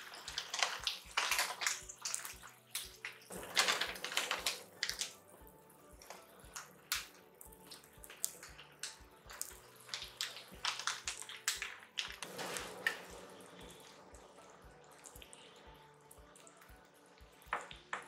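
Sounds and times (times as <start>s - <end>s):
sharp pops and crackles: 0.0s - 5.3s, 5.9s - 13.2s.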